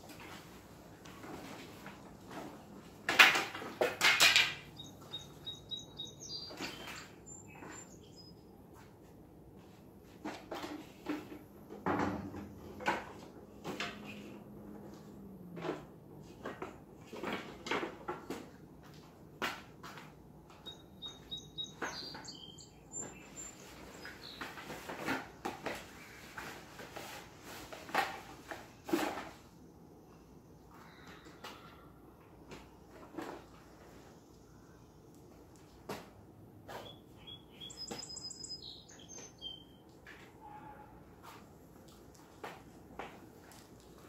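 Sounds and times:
birds chirping: 4.6s - 8.5s, 20.6s - 24.8s, 36.7s - 39.9s.

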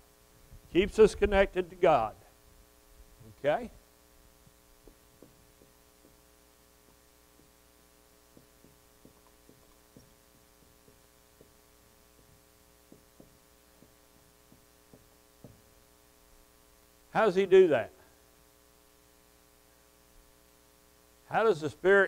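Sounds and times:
electrical hum: 0.0s - 22.0s
marker tapping on whiteboard: 4.8s - 6.3s, 8.3s - 11.6s, 12.2s - 15.7s.

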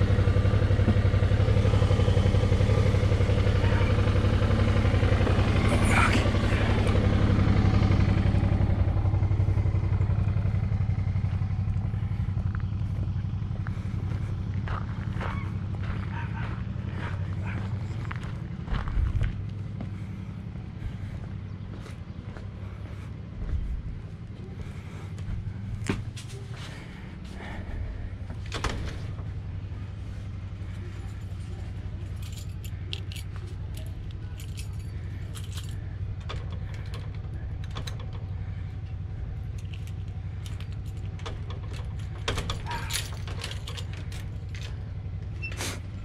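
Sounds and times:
steady low hum: 0.0s - 46.0s
small metal objects jingling: 32.0s - 35.9s.

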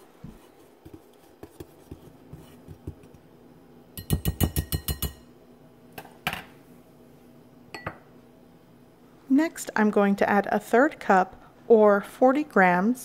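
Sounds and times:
wire whisk stirring flour: 0.0s - 3.2s
whisk clinking against glass bowl: 4.0s - 5.3s.

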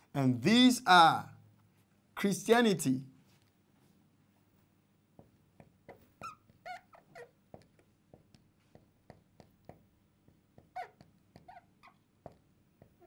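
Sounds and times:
marker tip taps and strokes: 5.1s - 13.0s
marker squeaking on glass: 5.8s - 7.8s, 10.5s - 13.0s.

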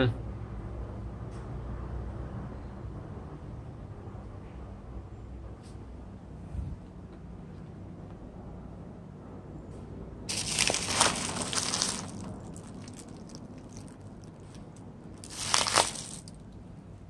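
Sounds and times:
plastic sack crinkling: 10.3s - 16.4s.

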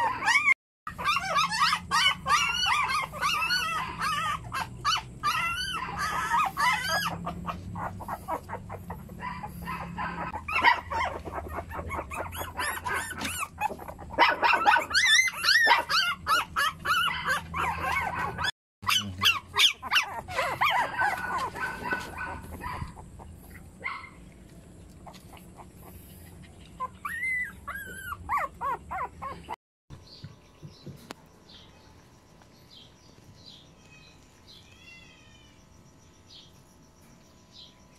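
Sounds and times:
newborn puppies crying: 0.0s - 24.2s, 26.7s - 29.6s.

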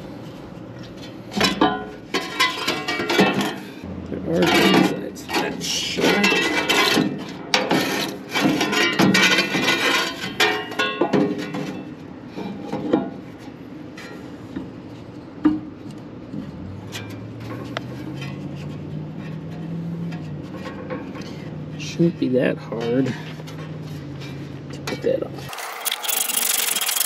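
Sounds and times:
low hum: 0.0s - 6.6s
metal fan blade rattling: 1.0s - 14.2s, 16.8s - 27.0s.

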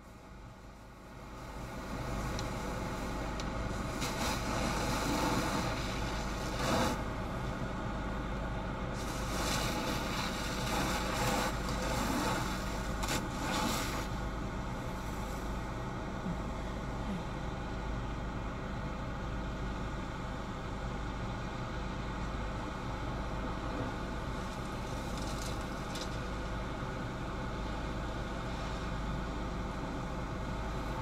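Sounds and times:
constant low hum: 0.0s - 31.0s
fire hose spraying water: 1.8s - 7.1s, 8.9s - 14.2s.

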